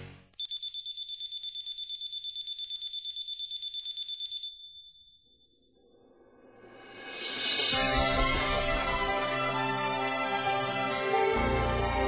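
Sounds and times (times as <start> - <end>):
telephone bell ringing trill: 0.4 - 5.6.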